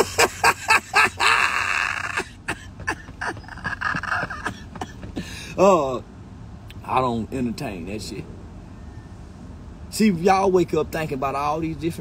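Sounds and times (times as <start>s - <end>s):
man laughing: 0.0s - 5.9s.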